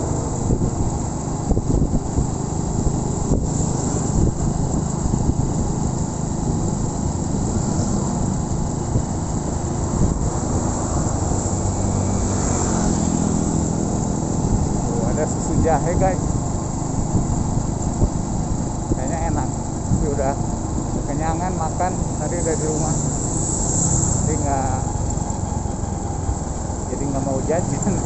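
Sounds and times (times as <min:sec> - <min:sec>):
motorcycle engine running: 0:00.0 - 0:28.0
wind rushing over microphone: 0:00.0 - 0:28.0.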